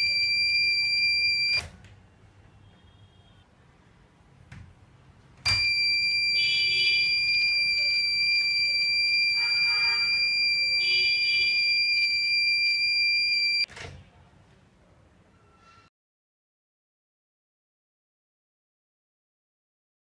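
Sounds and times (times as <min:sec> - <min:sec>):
high-pitched buzzer tone: 0:00.0 - 0:01.6, 0:05.5 - 0:13.7.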